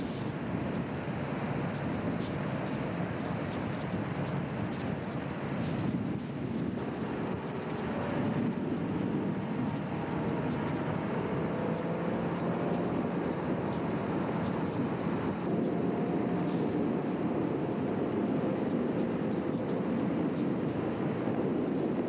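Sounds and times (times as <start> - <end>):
wind buffeting microphone: 0.0 - 22.0
boat engine running: 6.8 - 20.2.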